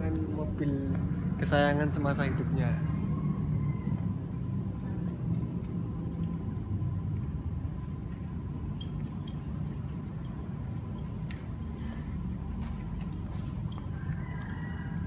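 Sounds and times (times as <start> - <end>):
indoor room rumble with hum: 0.0 - 15.0
light clicks and clinks: 8.7 - 15.0.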